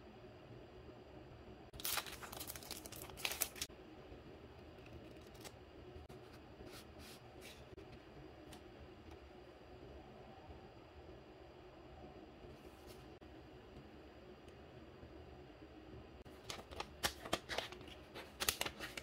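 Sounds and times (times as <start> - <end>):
plastic sleeve crinkling: 1.8 - 3.7.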